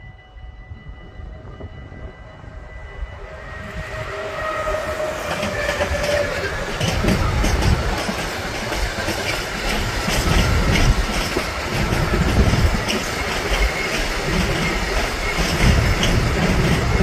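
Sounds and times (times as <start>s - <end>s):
train wheels rumbling on rails: 0.0s - 17.0s
wheels clicking over rail joints: 5.2s - 17.0s.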